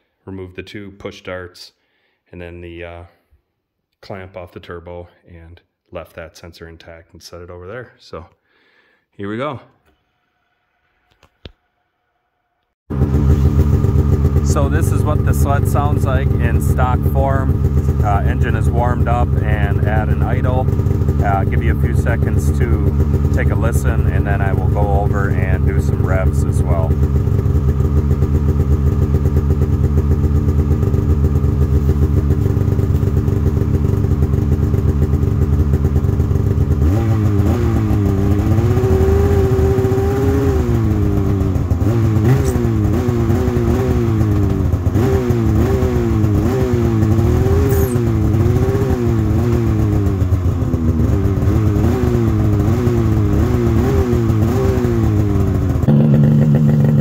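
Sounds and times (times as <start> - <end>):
snowmobile engine revving: 12.9 - 27.5, 36.7 - 57.0.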